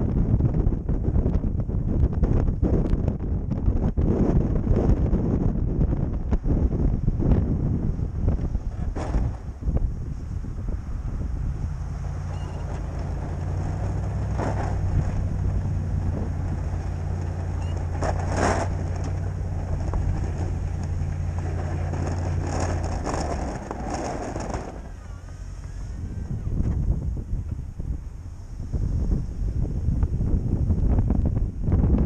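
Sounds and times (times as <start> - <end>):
pickup engine running: 0.1 - 32.0
plow pushing snow: 6.6 - 31.0.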